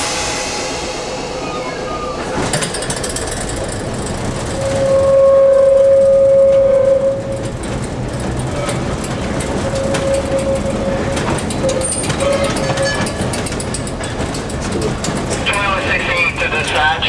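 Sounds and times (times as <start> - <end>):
streetcar rumble and rattle: 0.0 - 17.0
streetcar whine: 0.0 - 17.0
wheels clicking over rails: 2.4 - 17.0.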